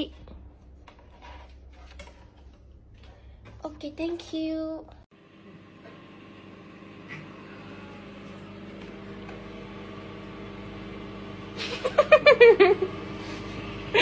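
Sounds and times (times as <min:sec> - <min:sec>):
low appliance hum: 0:00.0 - 0:14.0.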